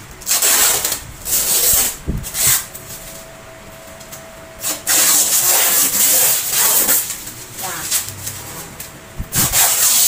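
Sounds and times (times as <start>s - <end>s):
plastic wrap peeling and rustling: 0.2s - 3.3s.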